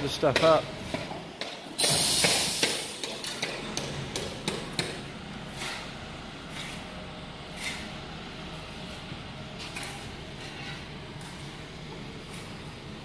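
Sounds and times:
short loud hiss: 0:01.8 - 0:02.9.

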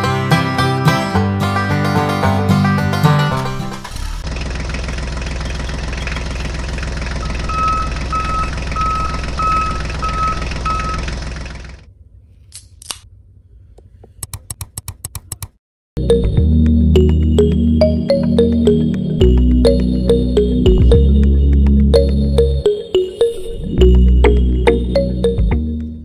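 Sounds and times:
background music: 0:00.0 - 0:03.8, 0:16.0 - 0:26.0
toy tractor electronic engine sound: 0:03.8 - 0:11.9
short high beeps: 0:07.2 - 0:11.0.

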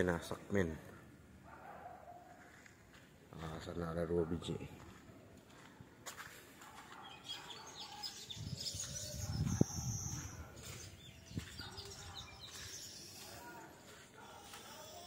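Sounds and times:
birds chirping: 0:06.6 - 0:15.0.

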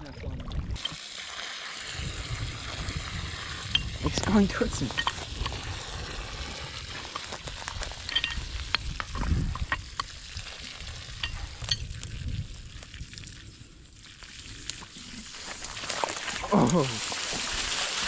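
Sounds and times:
crackling hiss: 0:00.8 - 0:18.0
metal valve key clinking: 0:08.1 - 0:08.4.

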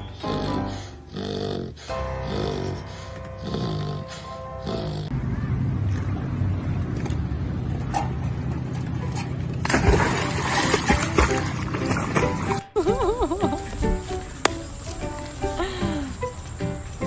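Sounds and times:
low steady rumble: 0:05.1 - 0:10.2
dog splashing into water: 0:09.6 - 0:12.6
water churning from paddling: 0:09.6 - 0:12.6.

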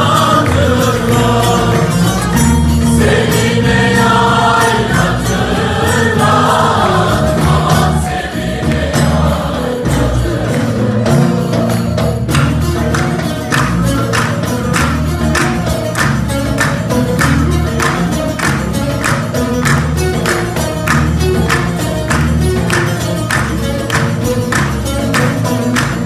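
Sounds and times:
choir singing in unison: 0:00.0 - 0:11.9
lute: 0:00.0 - 0:26.0
steady drum beat: 0:00.0 - 0:26.0
violins: 0:00.0 - 0:26.0.

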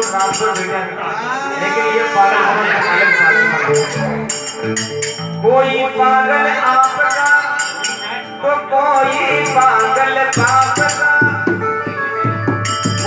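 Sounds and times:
jingling hand percussion: 0:00.0 - 0:00.9, 0:03.7 - 0:05.9, 0:06.6 - 0:11.7, 0:12.5 - 0:13.0
harmonium melody: 0:03.6 - 0:13.0
drum strokes: 0:09.0 - 0:11.7, 0:12.4 - 0:13.0.

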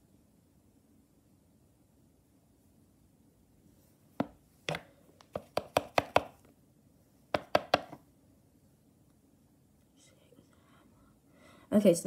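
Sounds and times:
knife chopping on wooden table: 0:04.2 - 0:06.4, 0:07.4 - 0:08.0.

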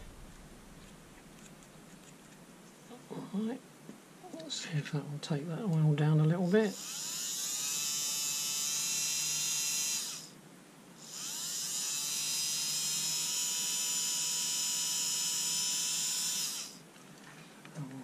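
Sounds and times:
small electric motor whining: 0:06.5 - 0:10.4, 0:11.0 - 0:16.8.

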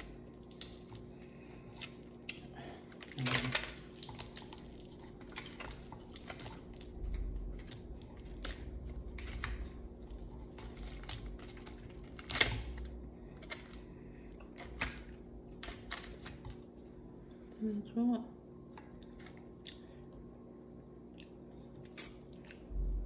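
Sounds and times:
crab shells cracking: 0:00.0 - 0:13.8.

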